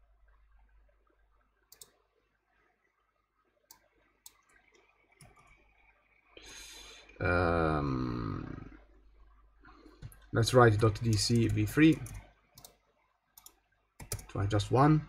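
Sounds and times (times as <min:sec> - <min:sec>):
mouse and keyboard clicks: 0:11.0 - 0:12.8, 0:13.4 - 0:14.3.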